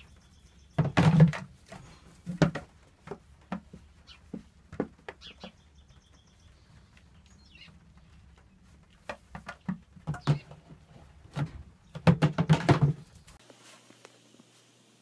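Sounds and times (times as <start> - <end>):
bird chirp: 0.0 - 1.2, 5.1 - 8.8
hooves knocking on plastic buckets: 0.6 - 13.4.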